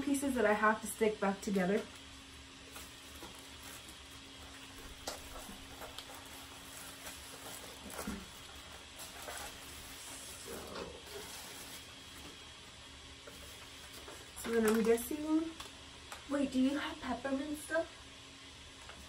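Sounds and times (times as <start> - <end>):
plastic wrapping crinkling: 1.5 - 12.4, 13.2 - 15.7.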